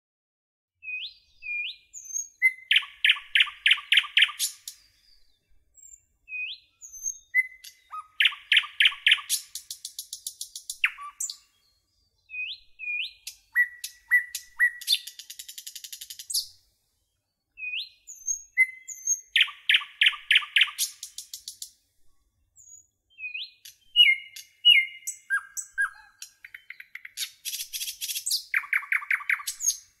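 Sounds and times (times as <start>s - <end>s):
songbird singing: 0.8s - 30.0s.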